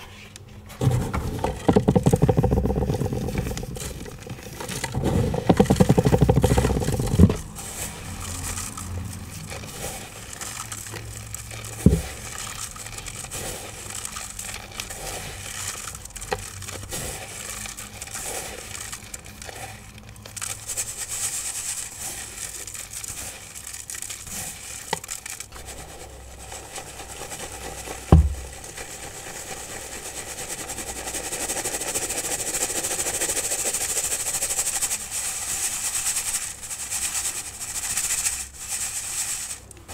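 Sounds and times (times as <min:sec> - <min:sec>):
pigment crushing and scraping: 0:00.0 - 0:30.0.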